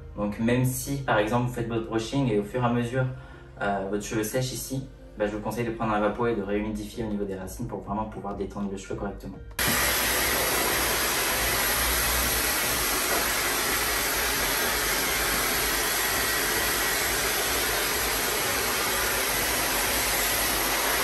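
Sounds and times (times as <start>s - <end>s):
hair dryer blowing: 9.6s - 21.0s.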